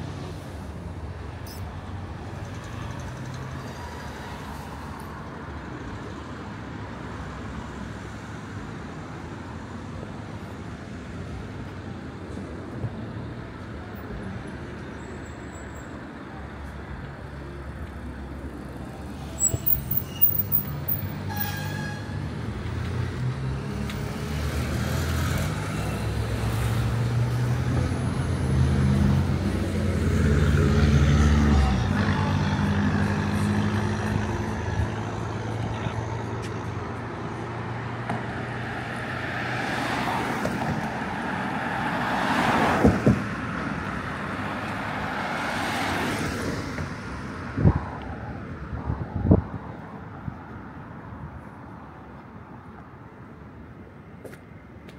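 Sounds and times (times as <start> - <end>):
sharp clicks and squeaks: 1.4 - 1.7.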